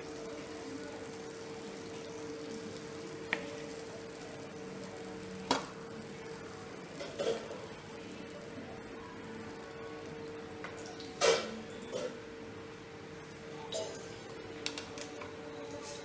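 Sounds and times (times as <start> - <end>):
oil hissing in a frying pan: 0.0 - 13.6
hot oil popping: 0.0 - 15.9
oil crackling: 13.1 - 16.0.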